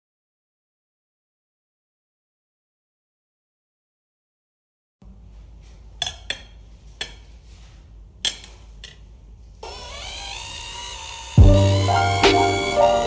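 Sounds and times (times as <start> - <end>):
cordless drill running: 9.6 - 13.0
music with brass: 11.4 - 13.0.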